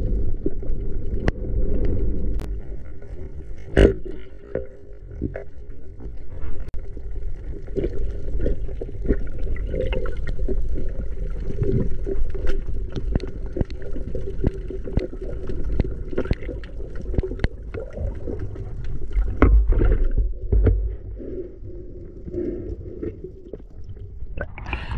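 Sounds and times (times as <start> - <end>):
underwater rumble of moving water: 0.0 - 24.9.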